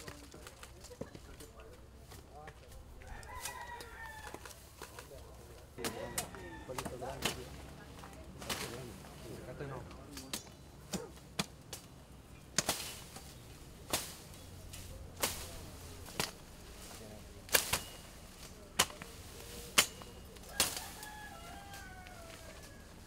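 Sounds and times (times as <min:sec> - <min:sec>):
machete chopping through brush: 0:05.8 - 0:07.6, 0:08.4 - 0:08.9, 0:10.1 - 0:11.9, 0:12.5 - 0:22.4.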